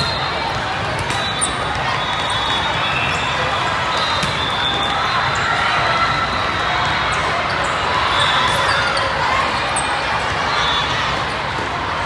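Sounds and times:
din of many voices: 0.0 - 12.0.

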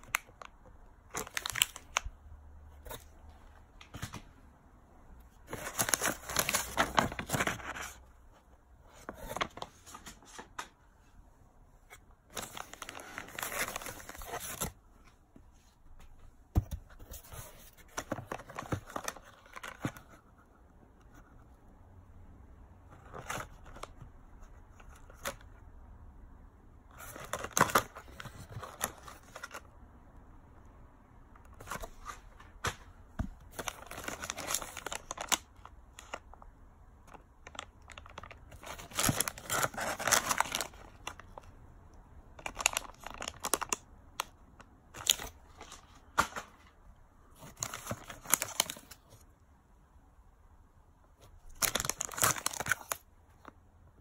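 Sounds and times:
plastic packets crinkling: 0.0 - 2.1, 33.5 - 36.4, 37.1 - 41.5, 42.4 - 44.3, 51.4 - 53.0.

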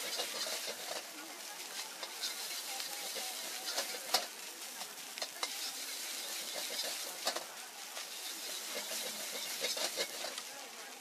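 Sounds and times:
metal ladle scraping and clanking: 0.0 - 1.1, 2.0 - 4.3, 5.2 - 10.4
rice sizzling in a wok: 0.0 - 11.0.

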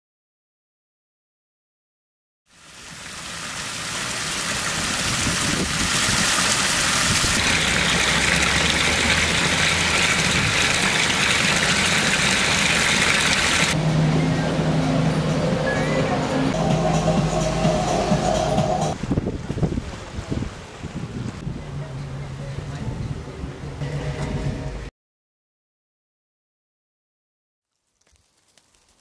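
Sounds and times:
fountain water splashing: 2.5 - 13.8.

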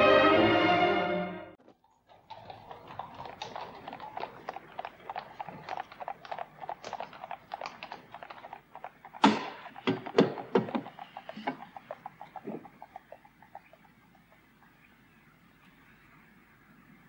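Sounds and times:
horse hooves on cobblestones: 1.6 - 15.9
wooden knocks from carriage: 9.2 - 13.0.

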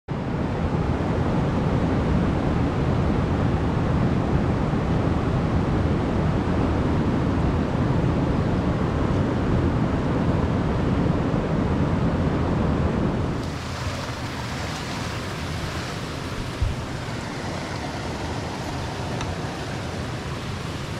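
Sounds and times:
stream rushing over rocks: 13.3 - 20.9.

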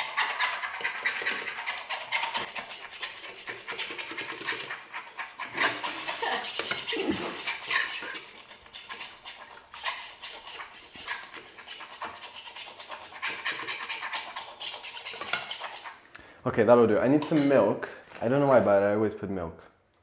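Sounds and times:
eggs beaten in a frying pan: 0.0 - 16.0.

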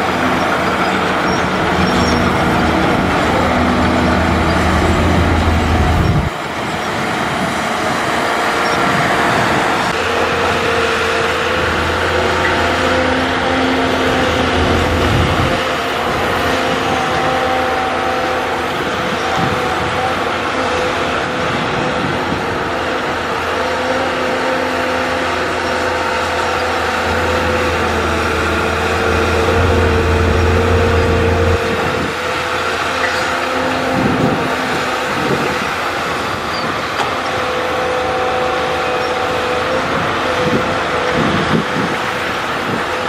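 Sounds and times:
excavator diesel engine digging: 0.0 - 43.0.

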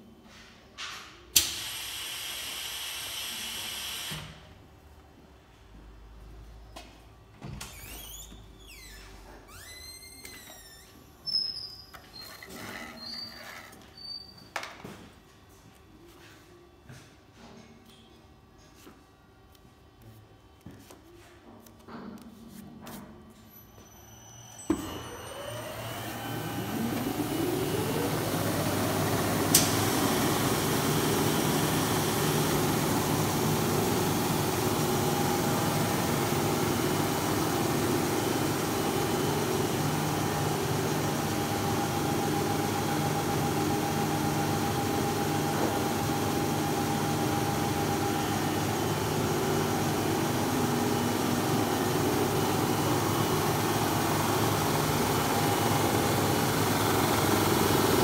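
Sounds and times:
machine whine: 23.4 - 58.0.

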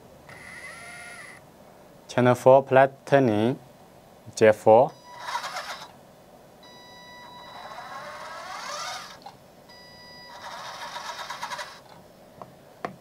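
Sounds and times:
electric motor whining: 0.3 - 1.4, 5.2 - 5.9, 7.5 - 9.3, 10.3 - 11.9.

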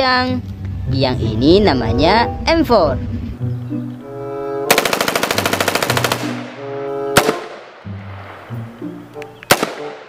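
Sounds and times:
background music with held notes: 0.0 - 10.0.

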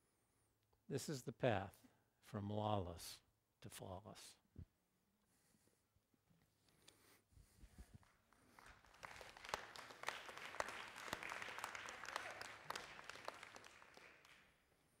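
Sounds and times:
faint applause: 8.4 - 14.6.

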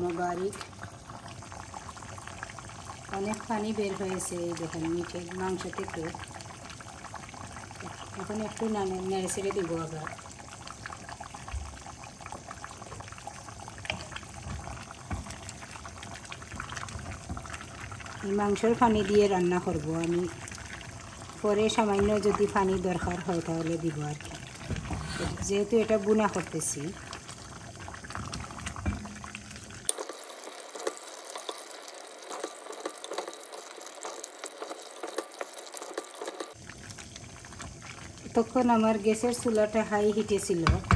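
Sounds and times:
meat bubbling and squelching: 0.5 - 38.6
simmering pops and clicks: 3.2 - 38.2
wooden spoon knocking pot: 13.9 - 15.6, 28.2 - 29.4, 40.6 - 40.9.

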